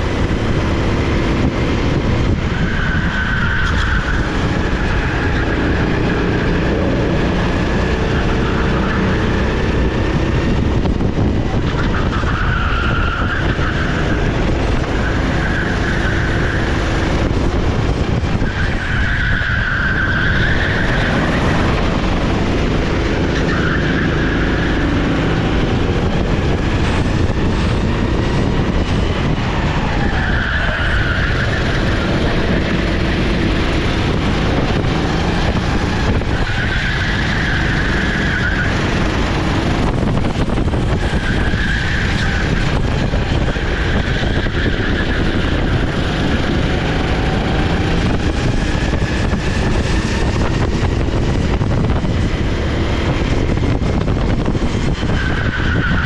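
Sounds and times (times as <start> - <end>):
kart engine running: 0.0 - 56.0
tyres squealing: 18.3 - 25.5, 29.2 - 39.6, 40.8 - 49.6, 54.9 - 56.0.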